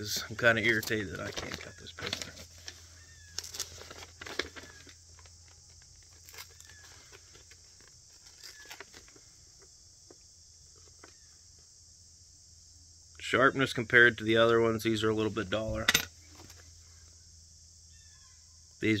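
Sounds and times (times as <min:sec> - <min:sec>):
paper rustling: 0:00.7 - 0:09.2
steady high hiss: 0:06.1 - 0:19.0.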